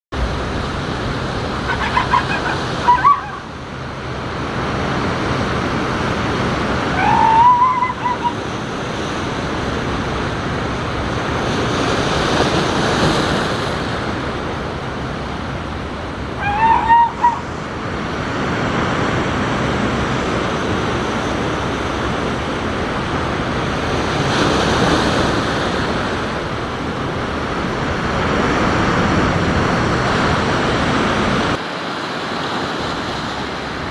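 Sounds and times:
surf washing onto rocky shore: 0.2s - 33.9s
brief high-pitched calls: 7.0s - 8.4s, 16.4s - 17.4s.

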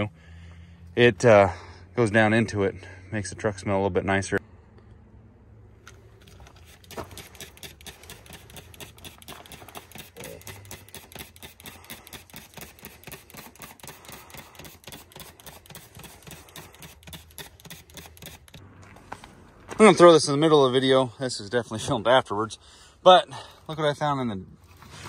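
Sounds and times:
trigger spray bottle spritzing: 6.4s - 18.6s.

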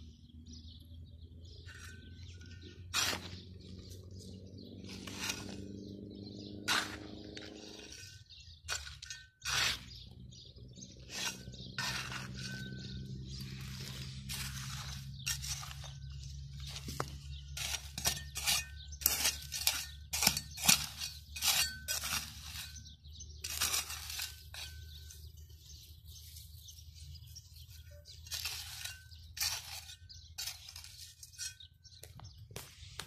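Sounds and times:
metal trowel scraping stony soil: 1.1s - 33.0s
trowel clinking on pebbles: 1.6s - 3.4s, 6.7s - 9.9s, 11.1s - 22.8s.

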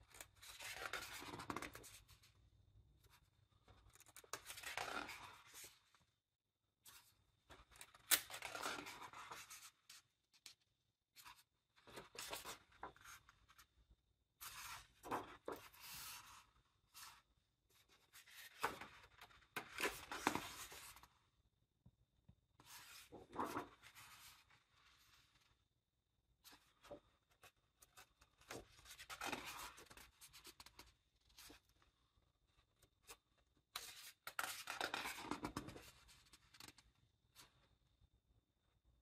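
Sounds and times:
pages rustling: 22.6s - 25.5s.

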